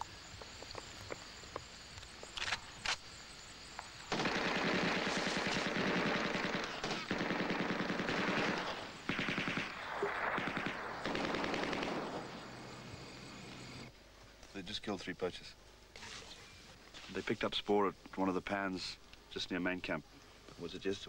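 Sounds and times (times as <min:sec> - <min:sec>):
automatic gunfire: 0:04.1 - 0:12.5.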